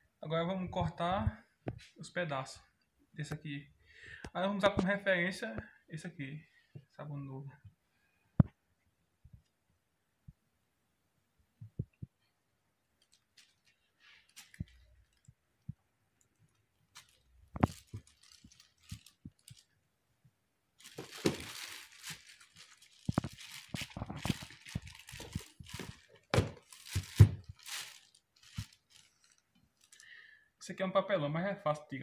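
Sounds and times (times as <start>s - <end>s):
plastic sheeting crinkling: 13.0s - 15.4s, 16.1s - 19.8s, 20.8s - 30.2s.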